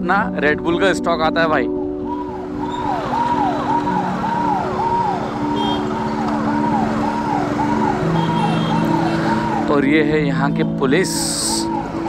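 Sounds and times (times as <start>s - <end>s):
electronic siren whooping: 1.8s - 9.7s.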